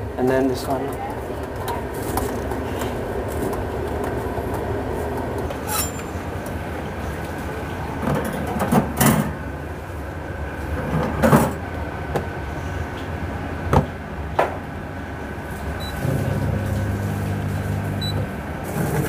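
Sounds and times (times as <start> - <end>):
dishwasher humming: 15.4 - 19.0
short electronic beep: 15.8 - 16.6, 17.5 - 18.2.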